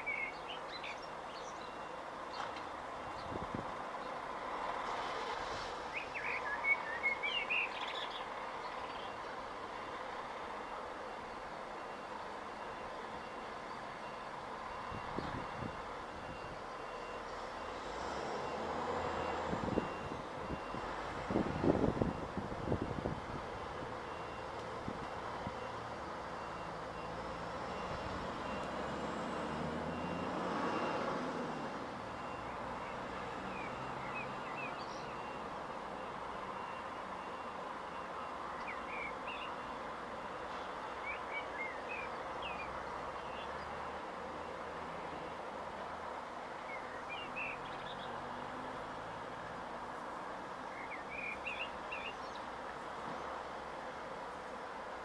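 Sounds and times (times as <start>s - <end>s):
small birds chirping: 0.0s - 2.5s, 5.9s - 9.4s, 50.7s - 52.8s
truck reversing alarm beeping: 0.0s - 4.9s, 5.8s - 54.2s.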